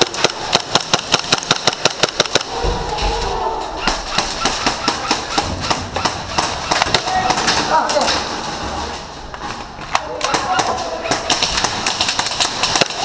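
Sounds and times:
airsoft gun rapid fire: 0.0 - 2.6, 3.8 - 8.0, 10.0 - 13.0.

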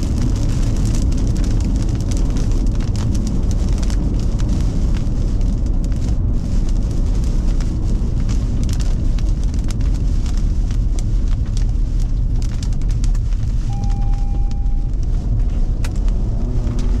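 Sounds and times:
raindrops ticking on vehicle: 0.0 - 17.0
strong wind rumbling: 0.0 - 17.0
short beep: 13.7 - 15.0.

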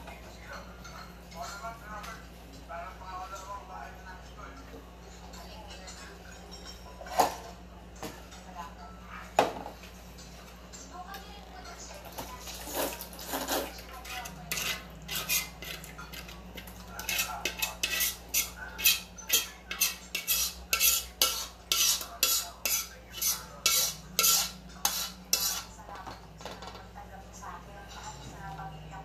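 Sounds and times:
utensil scraping a steel pot: 12.6 - 25.7.

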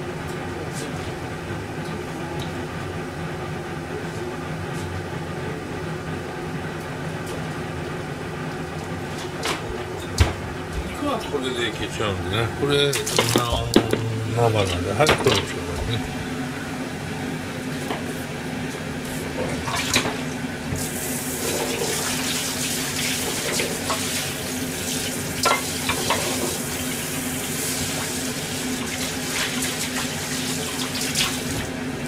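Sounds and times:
steady low hum: 0.0 - 21.6
tap water running into sink: 12.9 - 14.0, 19.4 - 31.7.

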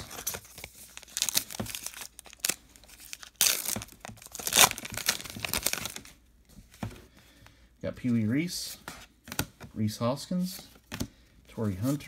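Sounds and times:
wrapper tearing and crinkling: 0.0 - 6.1.

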